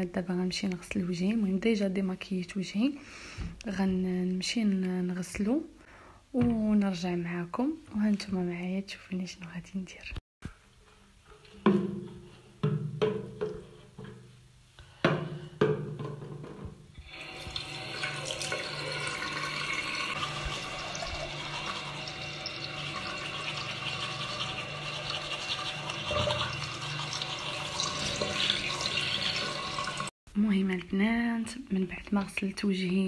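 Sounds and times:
water running into sink: 17.0 - 30.1.

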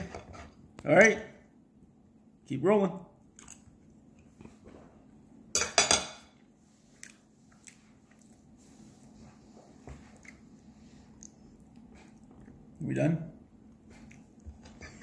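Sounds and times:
quiet chewing: 6.7 - 12.8, 13.6 - 15.0.

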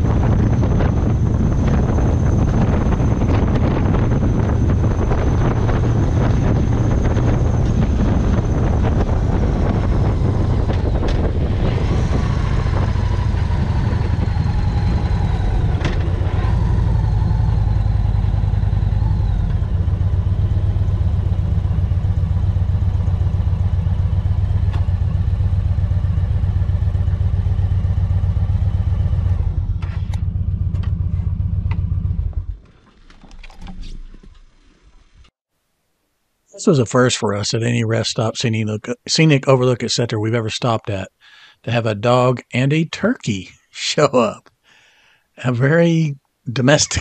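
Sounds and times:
motorcycle engine running: 0.0 - 32.7.

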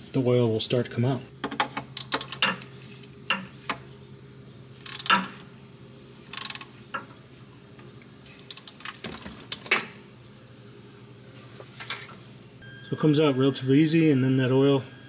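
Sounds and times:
ratchet clicking and clinking: 2.0 - 2.7, 4.8 - 5.4, 6.3 - 6.7, 8.5 - 8.9.

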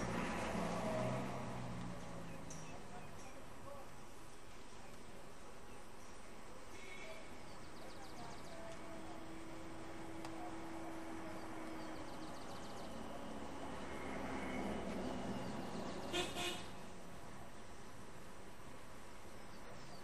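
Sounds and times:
vehicle passing: 0.0 - 2.8, 8.8 - 17.1
distant vehicle horn: 16.0 - 16.8.

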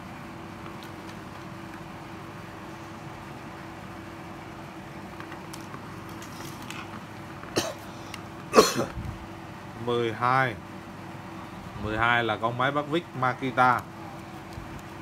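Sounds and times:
steady background hum: 0.0 - 15.0
person coughing: 7.6 - 7.9, 8.5 - 9.0.

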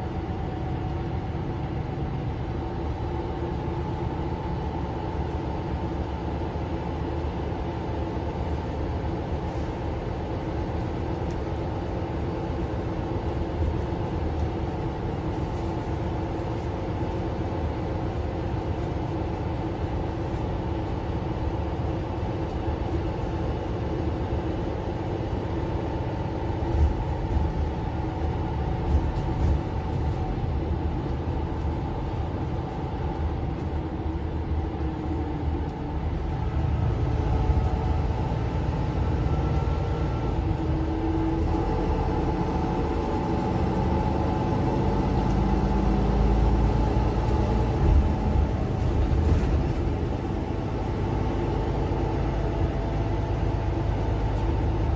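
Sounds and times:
bus engine drone: 0.0 - 54.9
road rumble: 0.0 - 54.9.

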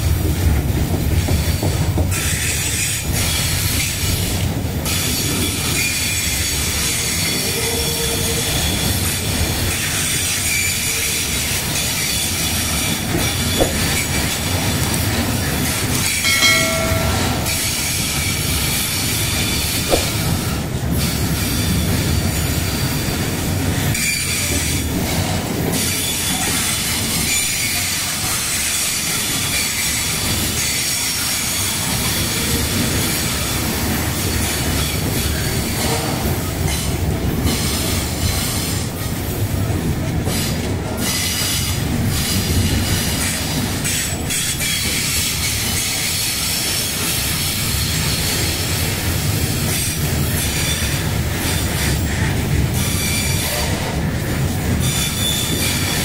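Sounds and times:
steel wheels rumbling on rails: 0.0 - 56.0
train screech: 1.4 - 33.6, 40.2 - 56.0
sharp metal clanks: 13.1 - 19.0, 19.8 - 20.6
high wheel squeal: 54.7 - 56.0.

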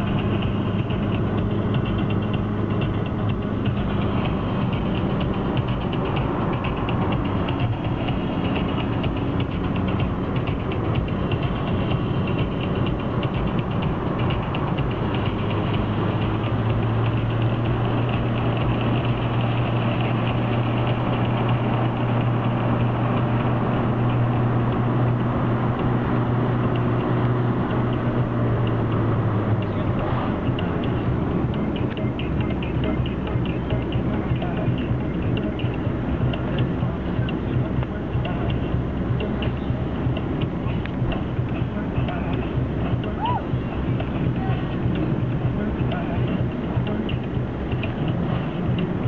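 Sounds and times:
car engine and road noise: 0.0 - 49.0.

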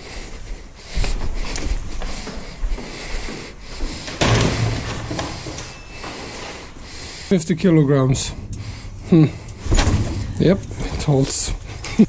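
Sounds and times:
loud door bang: 4.2 - 5.4, 8.3 - 11.8
low hum: 7.5 - 12.0
lift door rumbling: 7.7 - 12.0.

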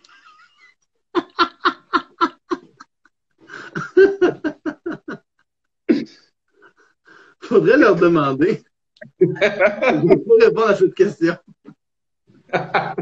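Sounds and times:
men laughing hard: 0.0 - 6.2, 9.1 - 10.5, 12.5 - 13.0.

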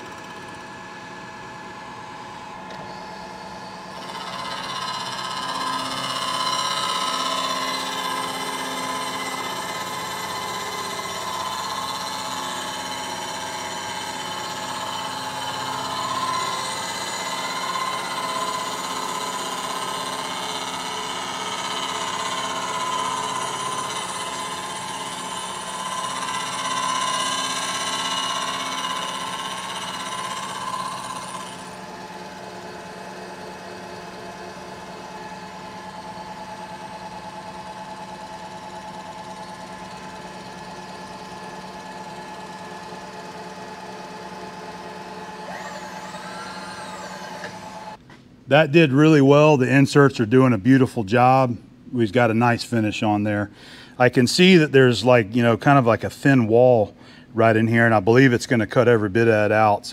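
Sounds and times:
milling spindle humming: 0.0 - 48.0
face mill cutting metal: 2.7 - 48.0.

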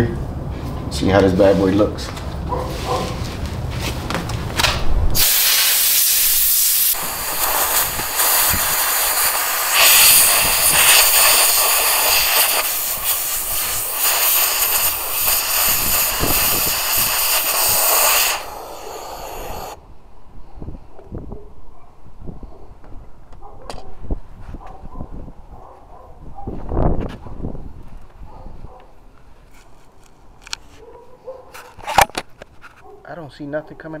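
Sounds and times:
abrasive blaster hissing: 5.2 - 19.8.

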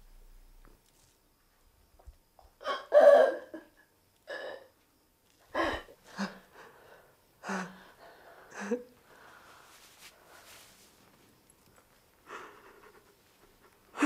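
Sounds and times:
woman sobbing: 2.6 - 4.7, 5.5 - 6.8, 7.4 - 9.0, 12.3 - 14.0.

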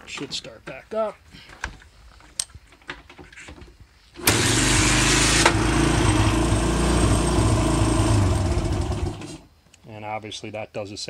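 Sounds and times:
engine starting and idling: 4.2 - 9.5.

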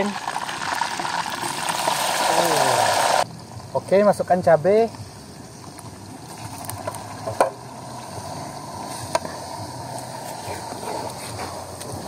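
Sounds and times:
paste sizzling in hot oil: 0.0 - 3.2.

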